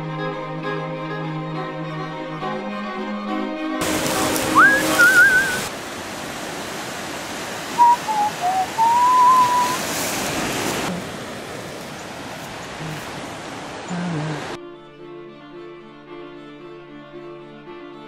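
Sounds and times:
string music: 0.0 - 5.7, 14.5 - 18.0
surf washing on rocks: 3.8 - 14.6
person whistling: 4.5 - 5.7, 7.8 - 9.8.

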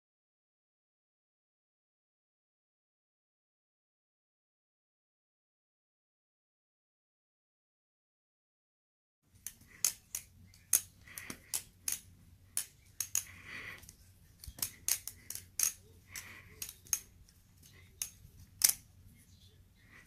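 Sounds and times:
butterfly knife metallic clicks: 9.4 - 18.8.

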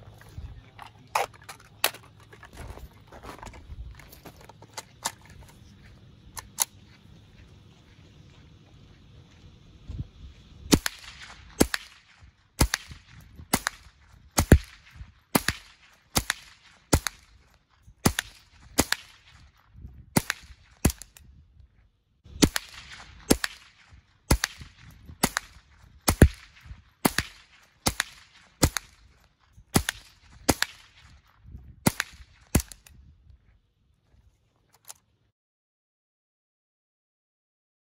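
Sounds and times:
rifle shots cracking: 10.7 - 17.4, 18.0 - 19.5, 20.2 - 21.2, 22.4 - 29.1, 29.7 - 31.2, 31.8 - 32.9.

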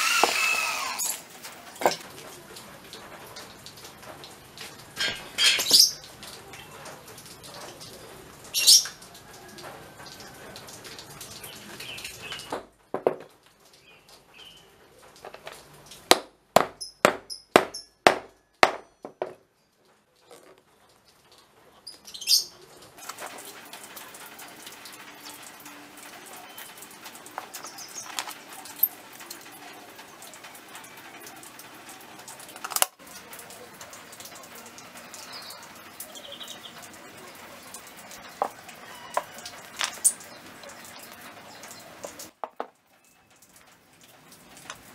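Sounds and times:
wooden toy parts knocking: 12.5 - 13.3, 16.1 - 19.4, 42.4 - 42.8
hammer driving nail into wood: 16.1 - 19.3.

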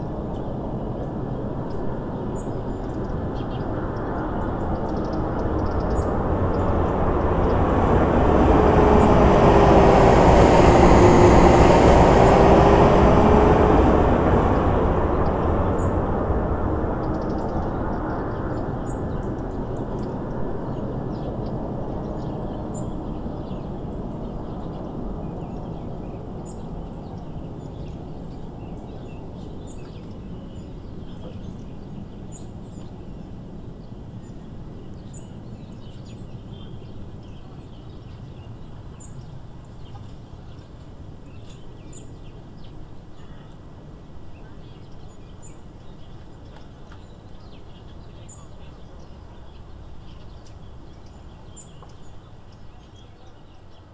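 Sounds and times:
jet engine roar: 0.0 - 30.3.

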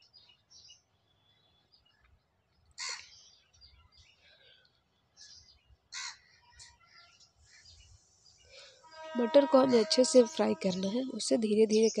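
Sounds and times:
harsh bird calls: 5.2 - 12.0.

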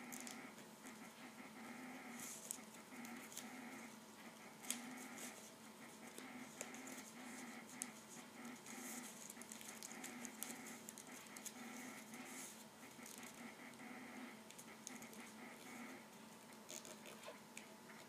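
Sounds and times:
paper being folded: 4.6 - 13.4.

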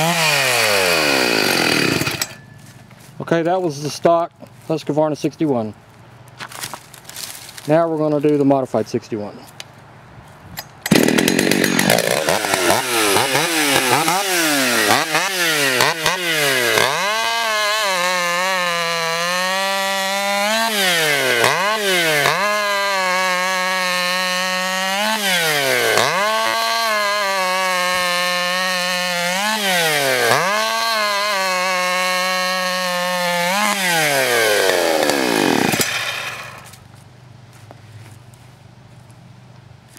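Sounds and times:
chainsaw cutting log: 0.0 - 2.5, 10.8 - 36.8.

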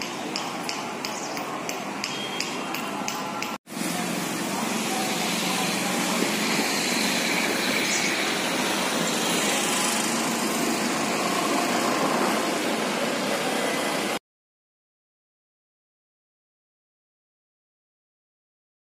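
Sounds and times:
steady background noise: 0.0 - 14.2.

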